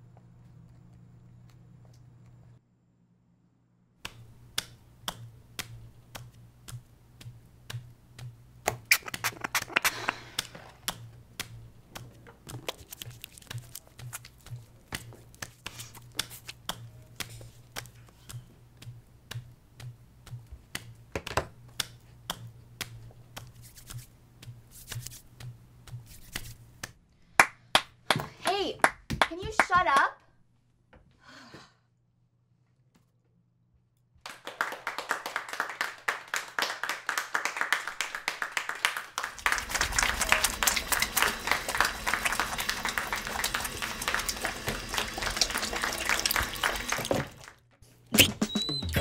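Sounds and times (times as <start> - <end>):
scratchy noise: 8.9 - 10.4.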